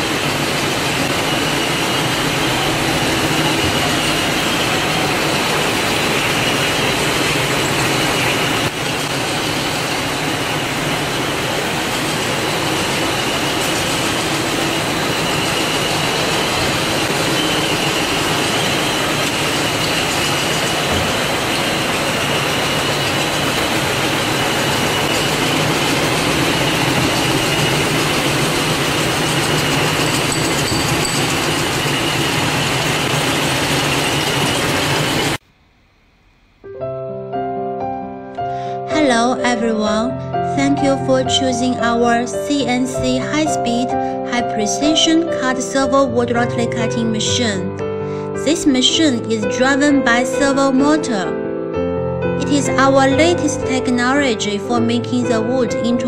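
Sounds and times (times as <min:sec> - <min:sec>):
wood peeling machines running: 0:00.0 - 0:35.4.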